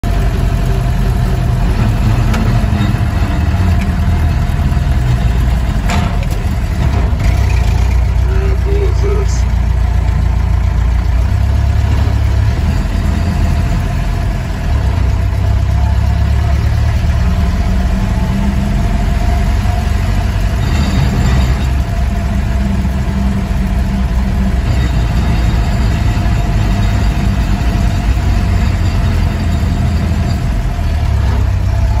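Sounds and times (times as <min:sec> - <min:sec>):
truck engine running: 0:00.0 - 0:32.0.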